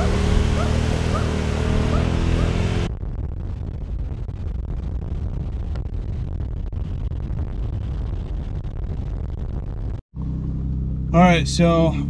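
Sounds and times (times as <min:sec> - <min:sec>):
vehicle driving on dirt trail: 0:00.0 - 0:03.0, 0:10.1 - 0:12.0.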